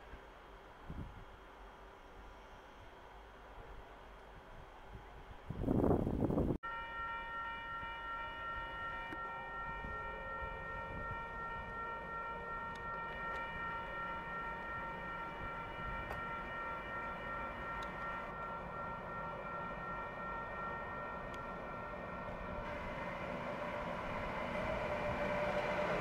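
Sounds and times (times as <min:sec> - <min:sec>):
electric locomotive whine: 0:00.0 - 0:26.0
train rumbling past: 0:05.4 - 0:26.0
low hum: 0:09.2 - 0:26.0.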